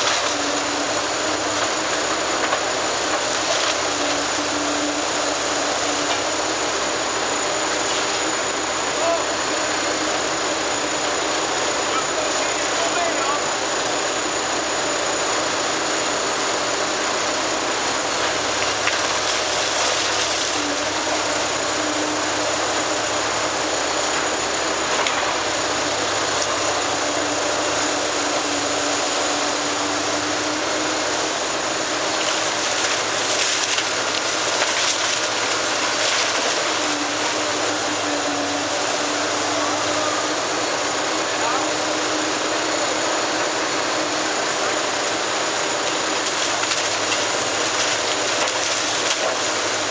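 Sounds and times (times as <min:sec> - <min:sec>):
excavator engine and hydraulics: 0:00.0 - 0:49.9
masonry cracking: 0:32.0 - 0:37.4.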